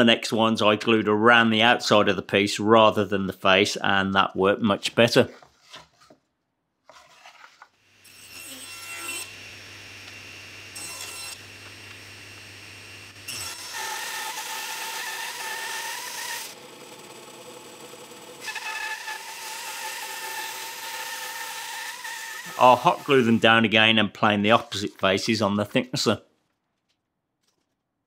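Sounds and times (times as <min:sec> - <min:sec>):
table saw ripping wood: 0:06.9 - 0:17.5, 0:18.3 - 0:25.4
router whining: 0:08.7 - 0:23.5.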